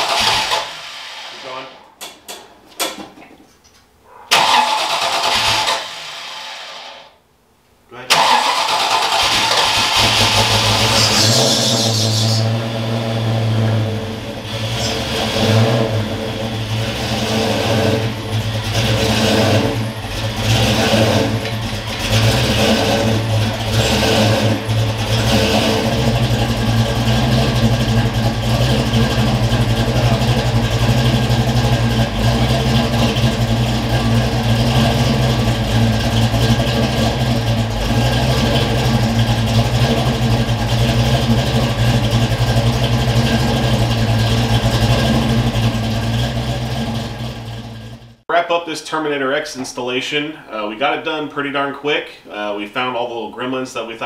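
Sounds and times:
car engine revving and idling: 8.1s - 48.2s.

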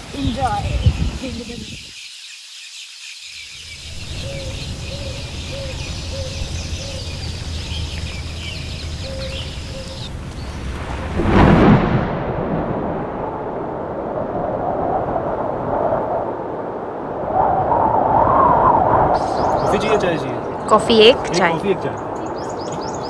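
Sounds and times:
birds chirping: 0.0s - 11.0s, 19.1s - 23.0s
distant thunder rumbling: 3.8s - 21.3s.

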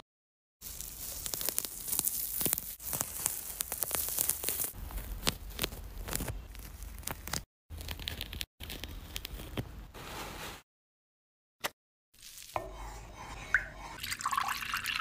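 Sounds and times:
orange peel tearing: 0.6s - 9.5s.

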